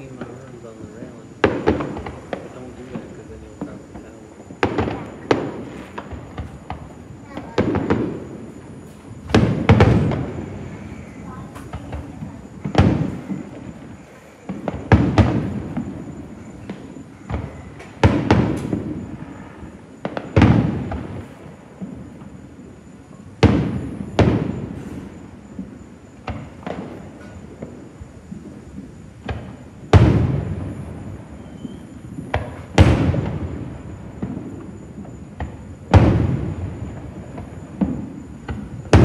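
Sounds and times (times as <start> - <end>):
faint firework pops: 0.0 - 22.4, 23.0 - 39.0
firework booms with echo: 0.0 - 39.0.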